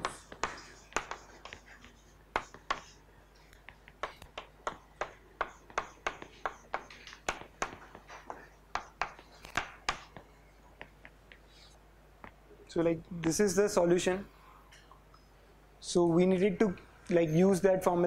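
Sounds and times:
chalk scratching: 0.0s - 3.0s, 3.6s - 10.2s
chalk tapping on blackboard: 0.0s - 12.4s.

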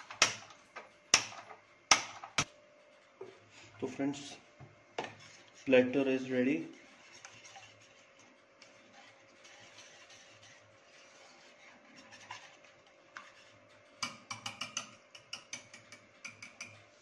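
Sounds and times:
whisk clinking on metal bowl: 5.0s - 16.8s
whisk stirring batter: 5.0s - 17.0s.

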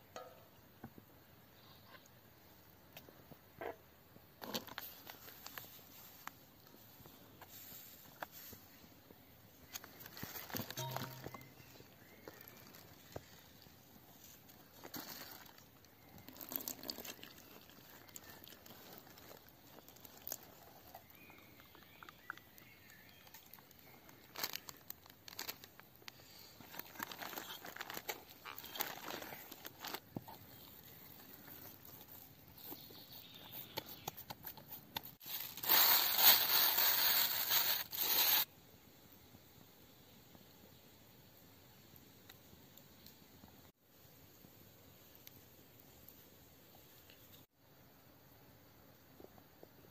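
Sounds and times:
plastic bag crinkling: 23.3s - 25.9s, 26.6s - 32.7s, 35.2s - 38.5s.

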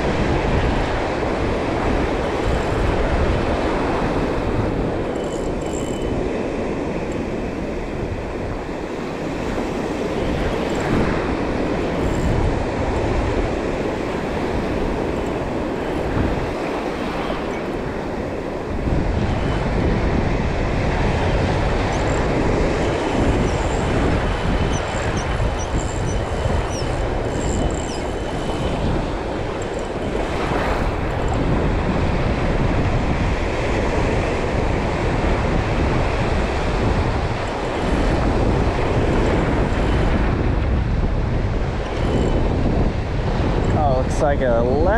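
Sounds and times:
wind buffeting microphone: 0.0s - 44.9s.

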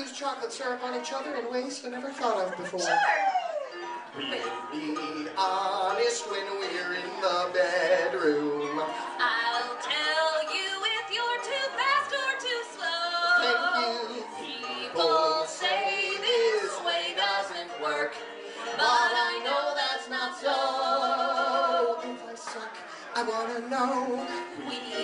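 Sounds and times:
man and woman singing duet: 1.3s - 25.0s.

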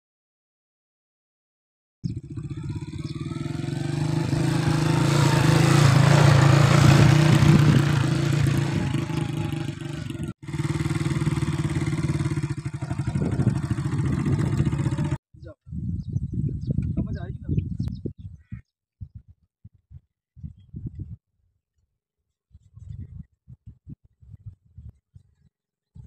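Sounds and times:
small motorcycle engine running: 2.1s - 15.2s.

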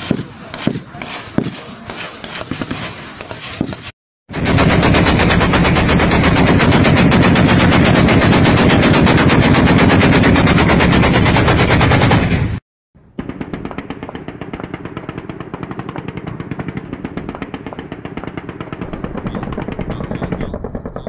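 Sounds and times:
faint gunshots: 0.0s - 3.0s, 11.2s - 21.0s
heavy machine gun burst: 4.4s - 12.6s, 18.8s - 21.0s.

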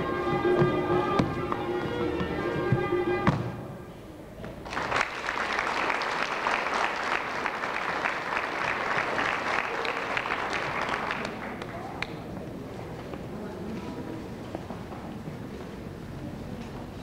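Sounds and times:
audience applauding: 4.6s - 11.9s.

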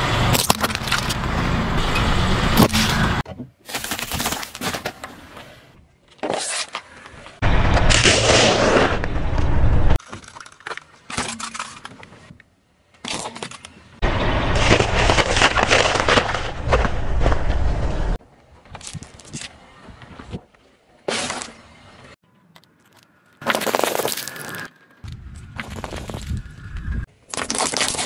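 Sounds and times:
tyre crushing food: 3.6s - 5.1s
tyre rumble on road: 14.0s - 18.2s, 22.7s - 27.1s.

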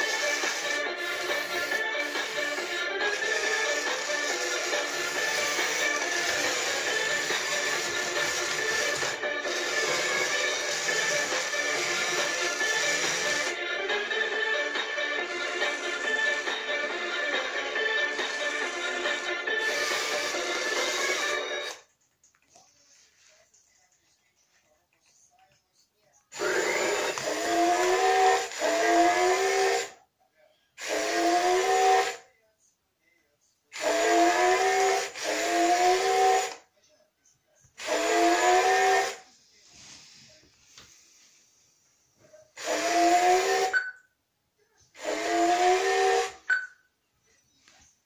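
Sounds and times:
toy robot electronic sound effect: 0.0s - 13.6s, 17.7s - 21.8s, 26.4s - 29.9s, 30.8s - 32.2s, 33.8s - 36.6s, 37.8s - 39.2s, 42.6s - 43.9s, 45.0s - 46.7s.

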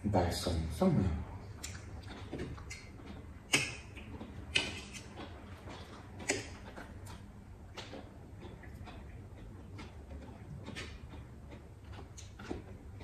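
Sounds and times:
chewing: 1.4s - 13.0s
crunches of biting cucumber: 3.5s - 8.0s.

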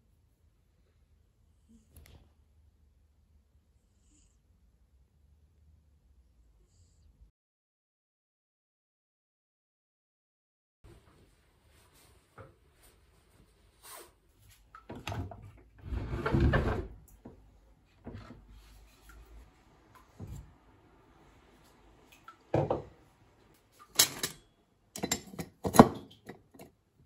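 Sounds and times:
glassware knocking and clinking: 22.6s - 22.9s, 24.0s - 24.4s, 25.0s - 26.7s.

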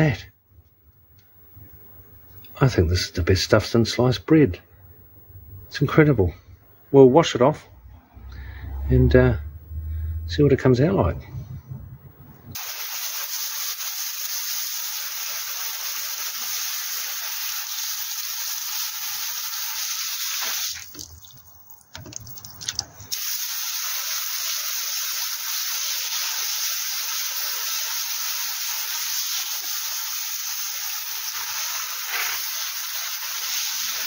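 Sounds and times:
hose nozzle spraying water: 12.6s - 34.0s.

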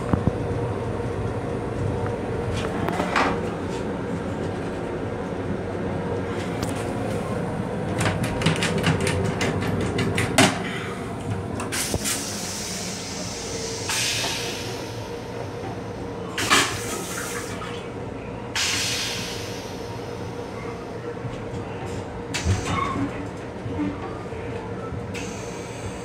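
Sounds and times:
railcar hum: 0.0s - 26.0s
toilet flushing: 16.4s - 17.9s.

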